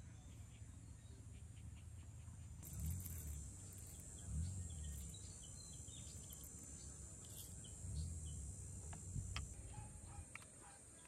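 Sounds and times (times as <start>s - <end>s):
bird chirps: 0.0s - 11.0s
low rumbles: 2.6s - 9.6s
insect drone: 2.6s - 11.0s.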